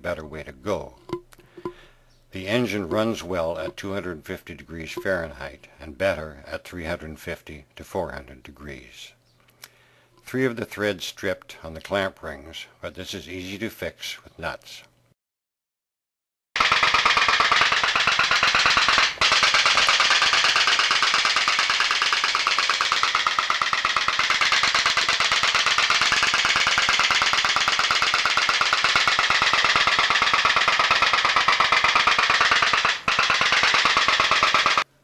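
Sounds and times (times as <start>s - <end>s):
pop-pop boat engine popping: 16.6s - 34.8s.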